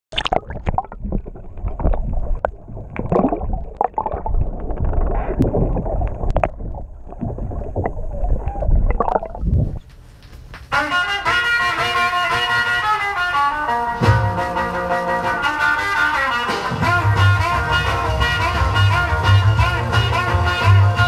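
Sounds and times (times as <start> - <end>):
water sloshing and gurgling: 0.1 - 9.8.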